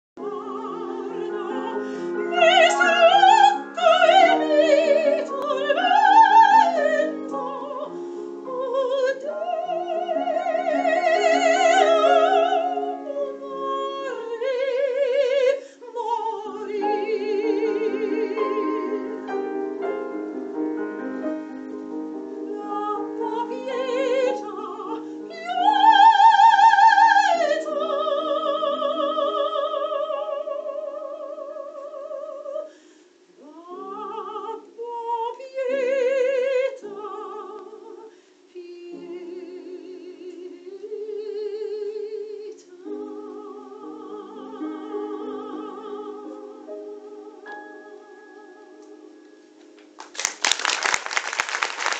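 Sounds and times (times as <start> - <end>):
piano chords: 0.2 - 30.9, 42.8 - 50.4
soprano singing: 0.2 - 50.0.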